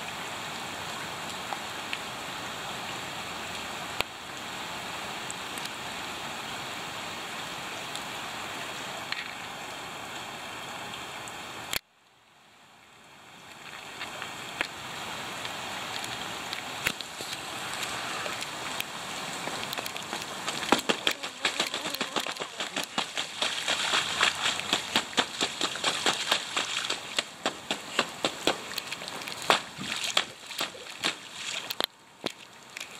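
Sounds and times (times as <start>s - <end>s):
rain pattering into puddle: 0.0s - 9.8s, 10.6s - 32.9s
rain on wet pavement: 0.0s - 32.9s.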